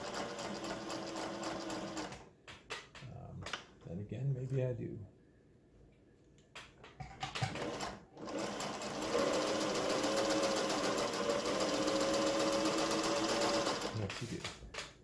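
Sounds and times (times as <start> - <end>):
sewing machine stitching: 0.0 - 2.2, 7.3 - 14.4.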